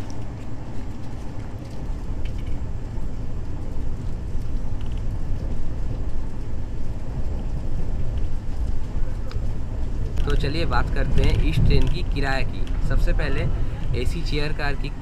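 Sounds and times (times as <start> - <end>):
train interior low rumble: 0.0 - 15.0.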